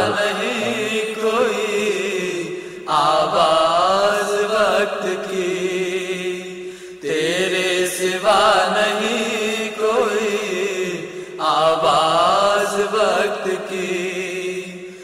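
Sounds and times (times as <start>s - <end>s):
man singing held notes: 0.0s - 1.1s.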